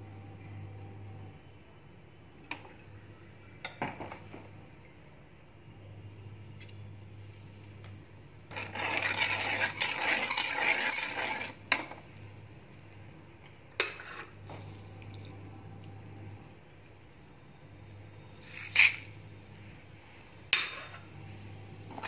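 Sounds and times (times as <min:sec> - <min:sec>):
metal spoon scraping a pan: 0:08.5 - 0:11.6, 0:13.8 - 0:14.9, 0:18.2 - 0:19.1.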